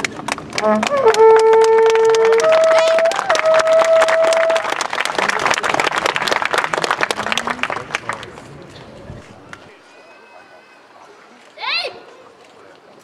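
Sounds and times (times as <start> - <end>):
wind instrument held notes: 0.6 - 4.7.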